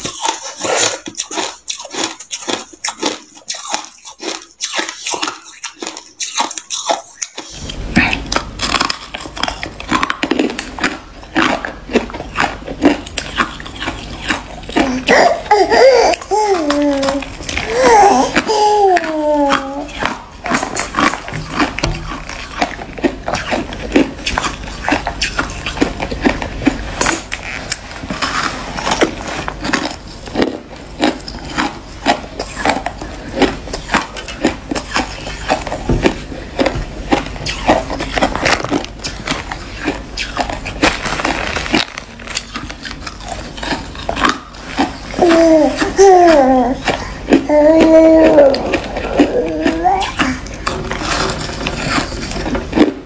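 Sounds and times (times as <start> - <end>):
ice being crunched by teeth: 0.0 - 53.0.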